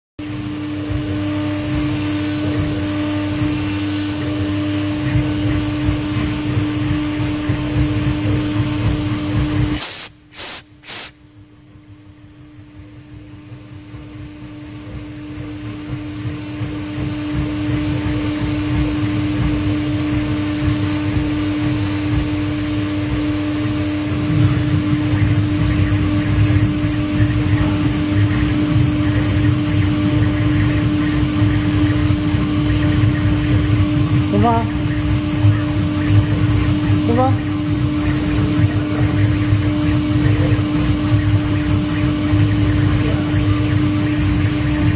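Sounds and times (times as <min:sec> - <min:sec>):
engraving machine spindle humming: 0:00.2 - 0:11.2, 0:12.5 - 0:44.9
short bursts: 0:09.7 - 0:11.2.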